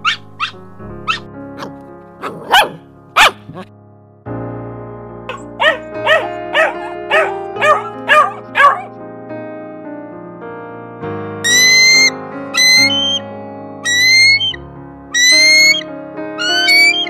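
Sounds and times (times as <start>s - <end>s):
dog barking: 0.0s - 3.7s, 5.3s - 8.9s
background music: 0.0s - 17.0s.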